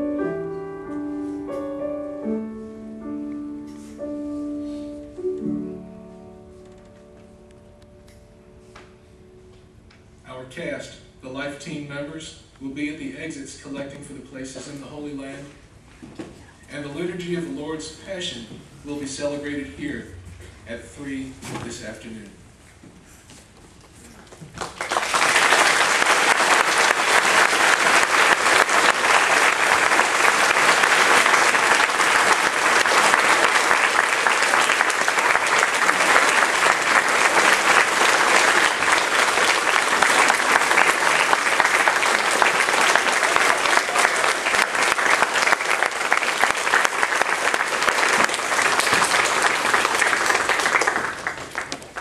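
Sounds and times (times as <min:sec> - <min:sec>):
audience applauding: 0:24.4 - 0:52.0.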